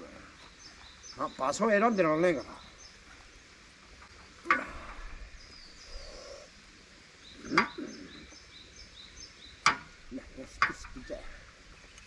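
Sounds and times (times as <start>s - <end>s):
birds chirping: 0.0s - 12.0s
sharp knocks: 9.6s - 9.9s.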